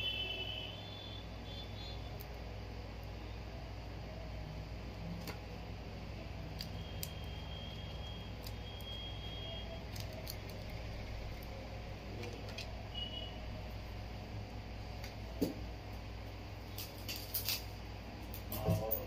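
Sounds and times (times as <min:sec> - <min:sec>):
screen protector peeling: 0:06.5 - 0:12.8.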